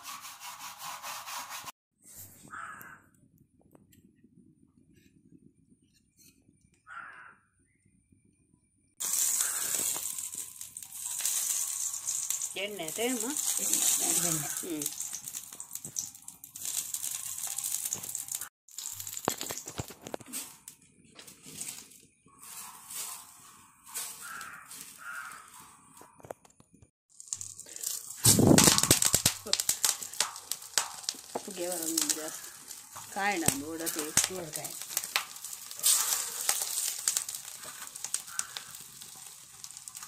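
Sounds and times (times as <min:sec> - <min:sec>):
crow cawing: 0:02.5 - 0:03.1, 0:06.9 - 0:07.5, 0:09.3 - 0:10.0, 0:23.6 - 0:26.0, 0:32.2 - 0:32.8, 0:37.4 - 0:38.9
oil sizzling on hot iron pan: 0:09.0 - 0:20.5, 0:27.1 - 0:40.0.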